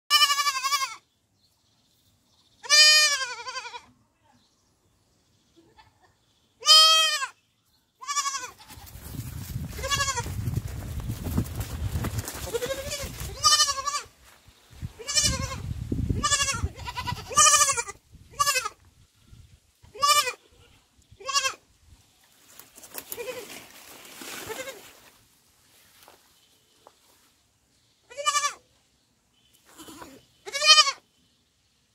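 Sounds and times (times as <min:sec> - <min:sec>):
young goat bleating: 0:00.1 - 0:01.1, 0:02.6 - 0:04.0, 0:05.6 - 0:07.4, 0:08.0 - 0:09.1, 0:09.7 - 0:10.4, 0:12.5 - 0:14.1, 0:14.9 - 0:18.8, 0:19.8 - 0:21.7, 0:23.1 - 0:23.6, 0:24.4 - 0:25.0, 0:28.0 - 0:28.7, 0:29.6 - 0:31.1.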